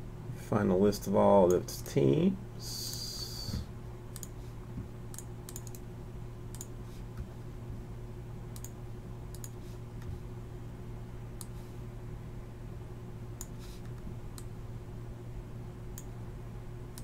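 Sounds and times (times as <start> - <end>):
steady low hum: 0.0 - 17.0
computer mouse clicks: 4.1 - 4.4, 5.1 - 5.8, 6.5 - 6.7, 8.5 - 10.1.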